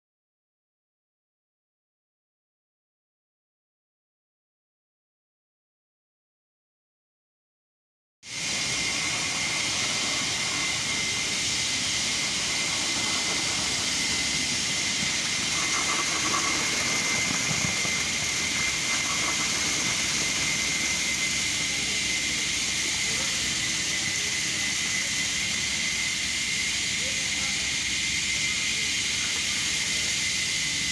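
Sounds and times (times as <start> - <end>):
steady high whine: 8.2 - 30.9
concrete pump running: 8.3 - 30.9
high hiss: 8.3 - 30.9.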